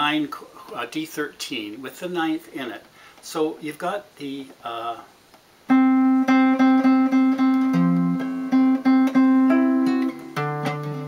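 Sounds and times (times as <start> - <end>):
fingerstyle classical guitar: 5.7 - 11.0.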